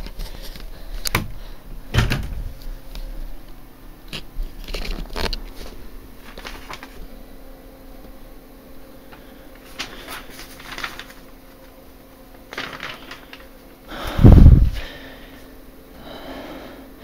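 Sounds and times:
faint steady hum: 0:00.0 - 0:17.0
paper rustling: 0:04.5 - 0:07.2, 0:09.0 - 0:13.7.

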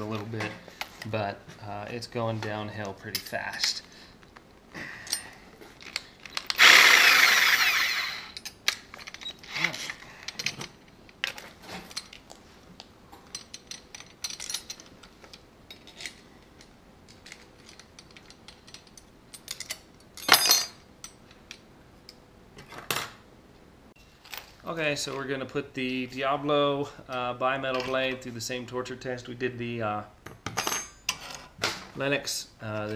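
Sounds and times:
metal clicks and clatter: 0:13.2 - 0:22.2.

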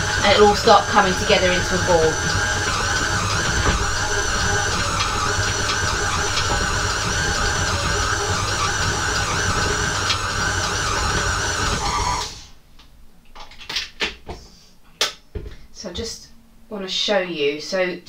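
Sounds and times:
stand mixer beating dough: 0:00.0 - 0:12.4.

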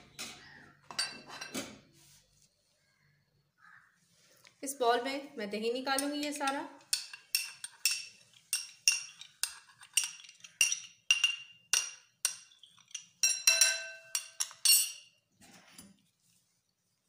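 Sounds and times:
metal spoon clinking against bowl: 0:05.8 - 0:15.2.

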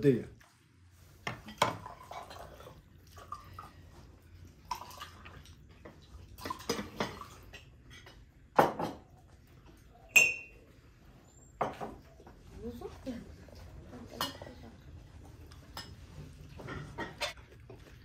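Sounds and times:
cutlery clinking on plates: 0:06.6 - 0:09.2, 0:10.1 - 0:10.6, 0:14.0 - 0:14.7, 0:15.5 - 0:17.4.

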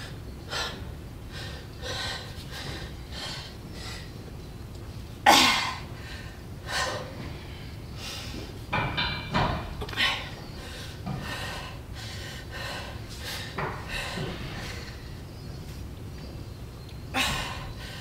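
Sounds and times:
woman breathing forcefully: 0:00.0 - 0:04.3, 0:05.4 - 0:08.7, 0:09.6 - 0:15.5, 0:17.1 - 0:18.0.

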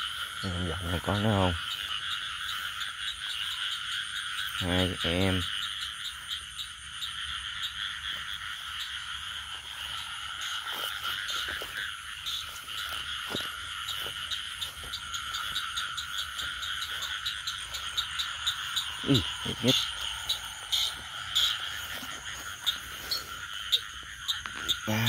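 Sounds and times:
frogs calling in chorus: 0:00.0 - 0:25.0
rustles of movement through stubble: 0:09.5 - 0:24.9.

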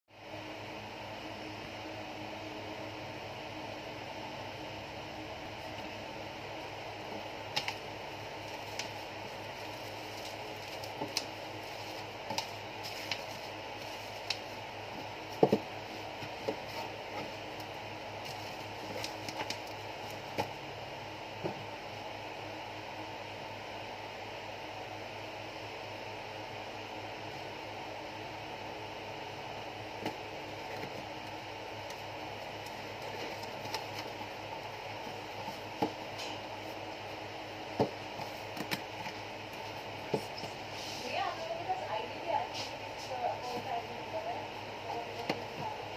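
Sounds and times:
background hiss and hum: 0:00.1 - 0:45.9
box knocking and rustling: 0:15.2 - 0:17.4, 0:35.0 - 0:36.1, 0:37.6 - 0:39.2
cardboard box knocks and taps: 0:15.4 - 0:15.7.

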